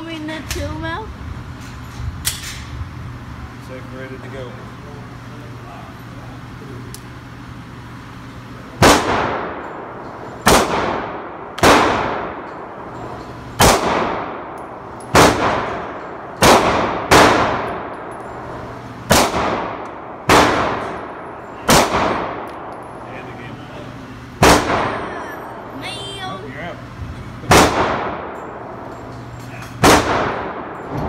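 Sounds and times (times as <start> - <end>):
gunshots echoing indoors: 8.8 - 12.9, 13.6 - 22.8, 24.4 - 25.1, 27.5 - 28.8, 29.7 - 31.0.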